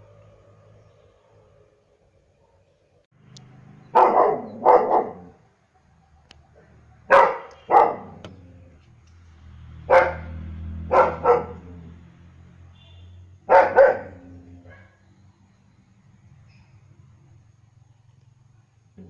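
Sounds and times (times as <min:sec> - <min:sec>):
dog barking: 0:03.9 - 0:05.4, 0:07.0 - 0:08.2, 0:09.9 - 0:11.7, 0:13.4 - 0:15.0.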